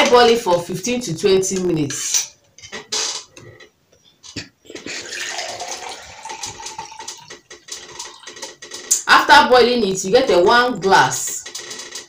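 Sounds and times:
water trickling into a glass: 4.9s - 8.3s.

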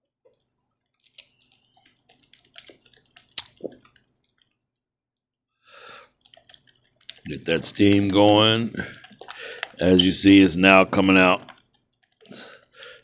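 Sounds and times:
boiling pan crackling and ticking: 0.2s - 4.6s, 6.0s - 13.0s.

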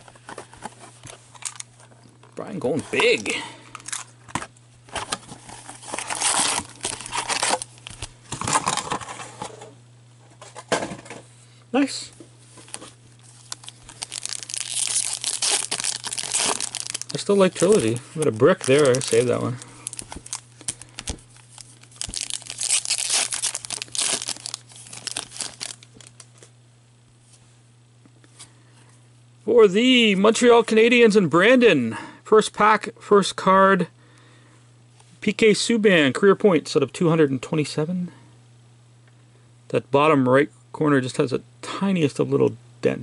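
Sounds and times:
packaging crinkling and rustling: 0.0s - 9.5s, 12.5s - 26.5s.

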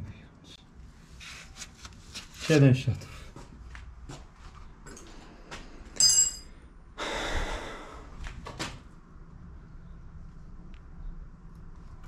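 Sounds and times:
bright metallic clink: 6.0s - 6.7s
loud breath out: 7.0s - 8.2s.

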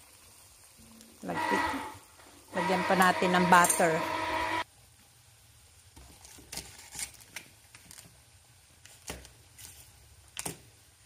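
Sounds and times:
foil wrapper crinkling: 6.0s - 10.7s.

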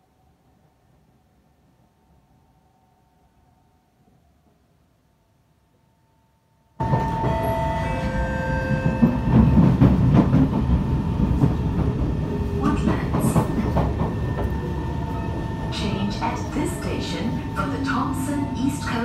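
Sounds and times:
train wheels rumbling on rail: 6.8s - 19.0s.

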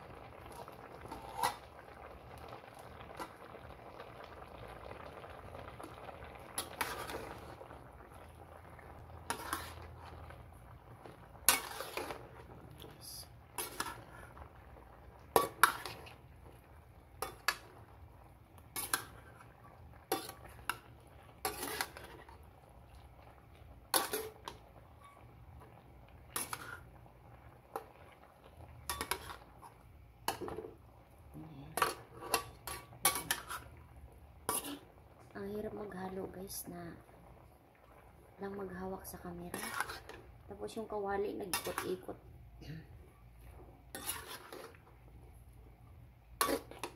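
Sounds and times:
spatula scraping a wok: 6.5s - 7.4s, 9.2s - 10.2s, 11.4s - 12.4s, 13.5s - 14.4s, 15.3s - 16.2s, 18.7s - 20.8s, 21.4s - 22.4s, 23.9s - 25.2s, 26.4s - 26.9s, 28.8s - 29.7s, 31.8s - 33.8s, 34.4s - 35.0s, 39.4s - 40.3s, 41.4s - 42.1s, 43.9s - 44.9s, 46.4s - 46.9s.

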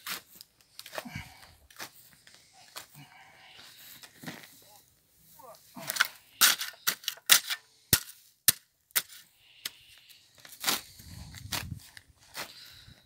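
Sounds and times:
spade knocking and scraping soil: 5.8s - 9.8s
spade crunching into soil: 5.8s - 12.7s.

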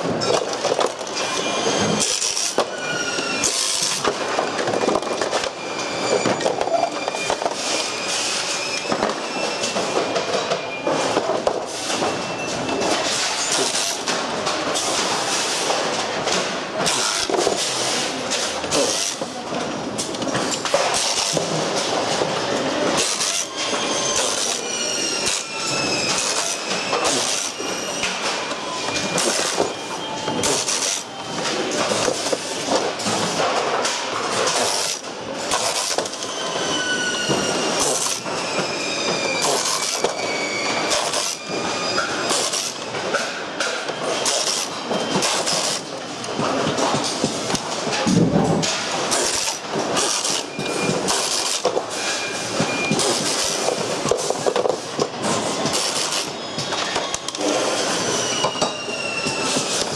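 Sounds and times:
plastic parts and screws clattering: 0.0s - 5.6s
pneumatic screwdriver whining: 23.0s - 31.2s, 34.5s - 42.8s, 55.6s - 59.9s.

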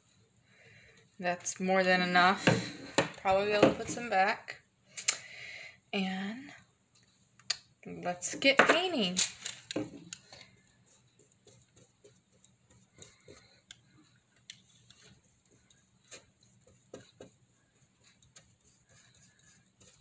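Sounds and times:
paintbrush tapping and scraping: 0.9s - 4.1s, 7.9s - 20.0s.

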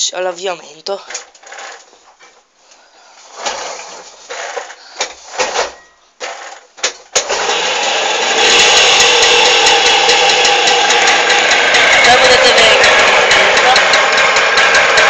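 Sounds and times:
moped engine cranking and running: 1.1s - 2.0s, 3.4s - 5.3s, 6.2s - 15.0s.

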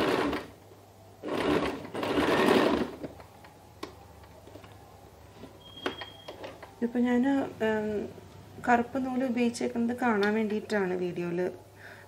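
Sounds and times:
electric sewing machine stitching: 0.0s - 0.5s, 1.2s - 3.1s.

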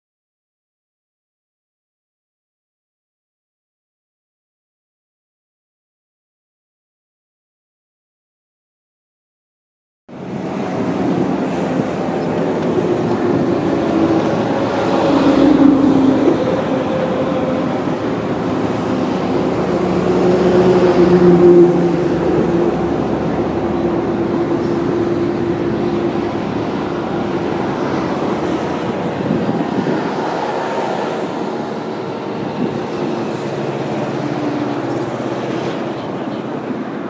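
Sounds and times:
passing motor traffic: 10.1s - 37.0s.

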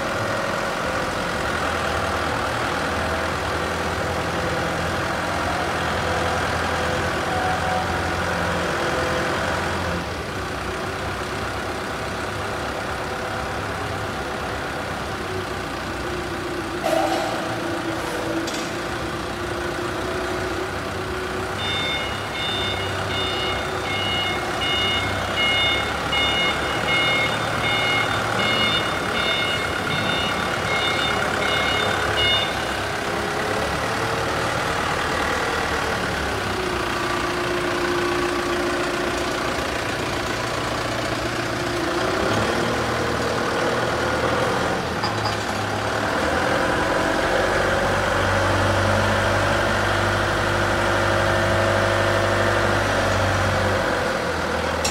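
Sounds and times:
forklift engine running: 0.0s - 54.9s
reversing alarm beeping: 16.8s - 17.8s, 21.6s - 32.9s.

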